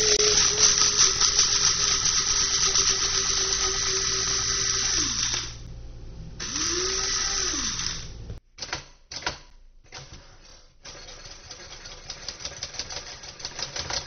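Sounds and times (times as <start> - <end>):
small electric motor whirring: 0.0 - 5.7, 6.4 - 8.4.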